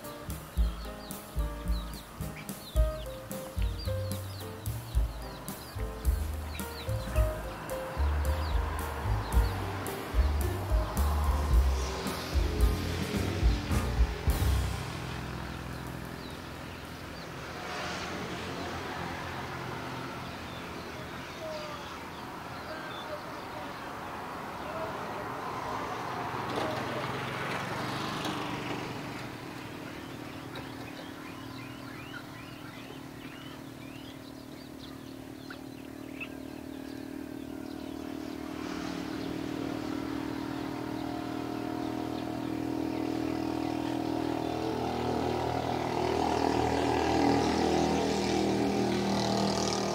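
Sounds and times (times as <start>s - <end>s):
vehicle engine running: 2.8s - 17.3s, 26.5s - 49.9s.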